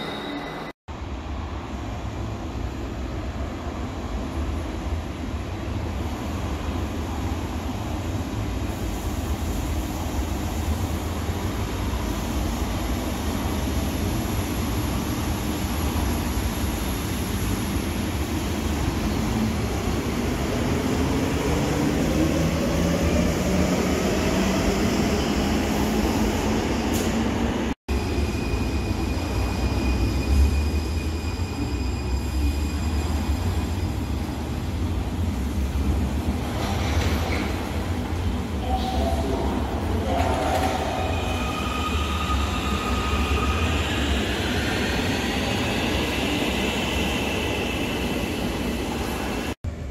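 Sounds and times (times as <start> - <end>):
train high whine: 0.0 - 0.8, 38.6 - 49.6.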